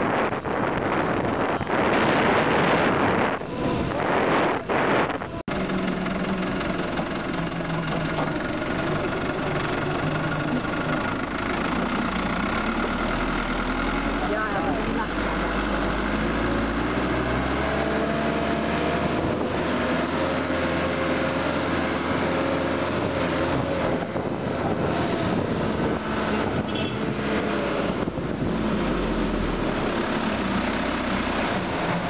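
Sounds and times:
vehicle engine running: 5.4s - 16.2s.

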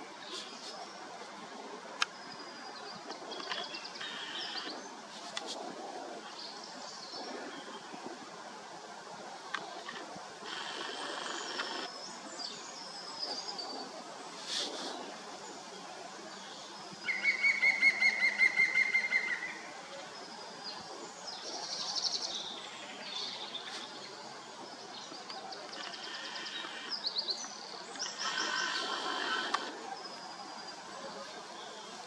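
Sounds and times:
woodpecker calling: 3.2s - 4.9s, 9.8s - 11.9s, 17.1s - 19.6s, 25.7s - 29.8s.

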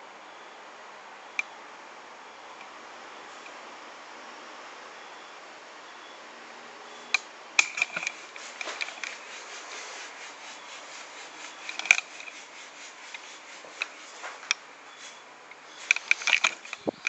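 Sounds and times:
steady hiss: 0.0s - 17.0s
scratching and rubbing: 7.6s - 17.0s
sharp clicks: 15.5s - 17.0s.

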